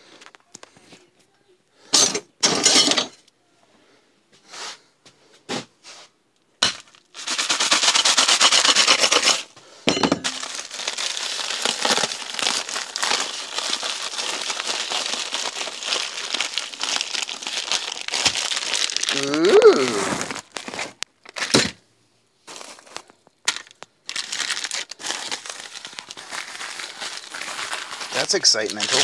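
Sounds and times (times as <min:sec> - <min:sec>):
packing material crinkling: 0:10.2 - 0:21.6, 0:22.4 - 0:29.0.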